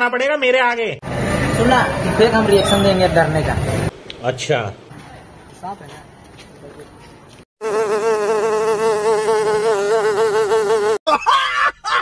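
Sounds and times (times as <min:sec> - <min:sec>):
fly-like buzzing: 0:07.6 - 0:11.0.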